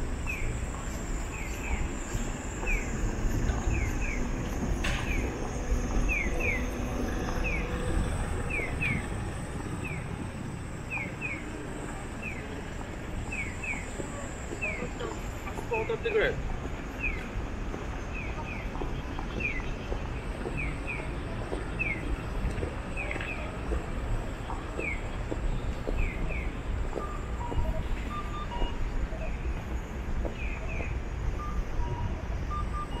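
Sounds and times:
low rumble of street traffic: 0.0 - 33.0
electronic bird-chirp crossing signal: 0.2 - 9.2, 26.1 - 29.7, 30.4 - 33.0.

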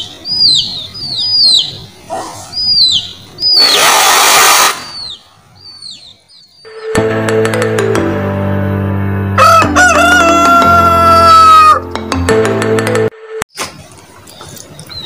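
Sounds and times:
bird chirping: 0.0 - 7.0, 13.5 - 15.0
hissing water spray: 3.6 - 4.9.

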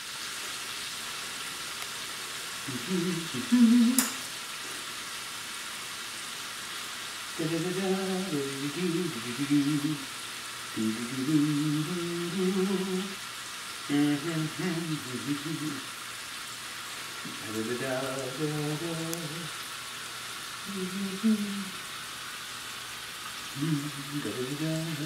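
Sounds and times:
steak sizzling in a frying pan: 0.0 - 25.0
man humming: 2.7 - 4.2, 7.4 - 10.1, 10.8 - 13.2, 13.9 - 15.9, 17.3 - 19.6, 20.6 - 21.8, 23.5 - 25.0.

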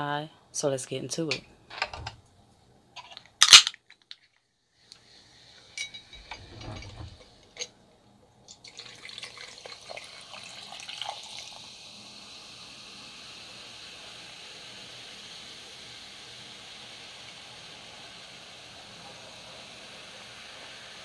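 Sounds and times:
can cracking open: 3.2 - 4.2
soda fizzing over ice: 8.5 - 21.0.

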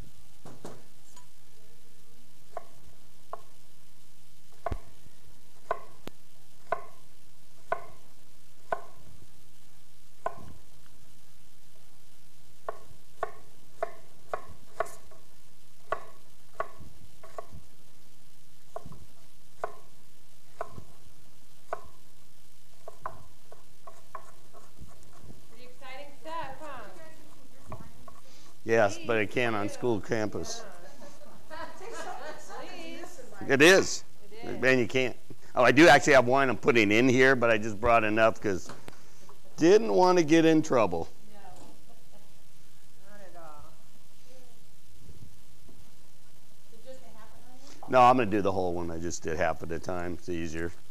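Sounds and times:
steady low hum: 0.0 - 50.9
knife chopping on wooden board: 4.6 - 4.9, 5.6 - 6.0, 6.6 - 7.0, 7.6 - 9.0, 10.2 - 10.6, 12.6 - 15.2, 15.8 - 17.6, 18.7 - 19.9, 20.5 - 21.0, 21.7 - 22.0, 22.8 - 25.5.

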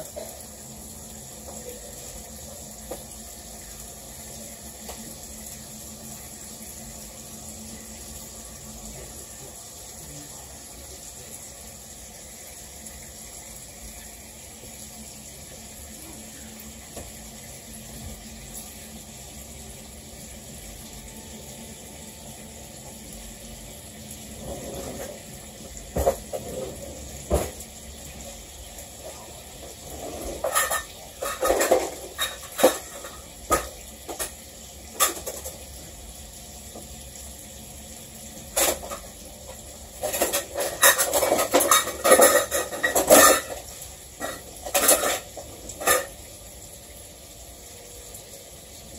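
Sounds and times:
cookware and utensils clanking: 0.0 - 0.6, 24.3 - 27.6, 28.9 - 35.8, 38.4 - 46.3
bacon frying hiss: 0.0 - 48.9.

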